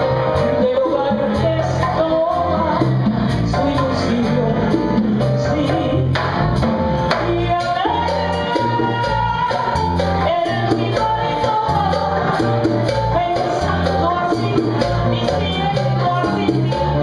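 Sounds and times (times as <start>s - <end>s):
drums and percussion: 0.0s - 17.0s
electric bass: 0.0s - 17.0s
woman singing into microphone: 0.4s - 6.2s, 7.1s - 17.0s.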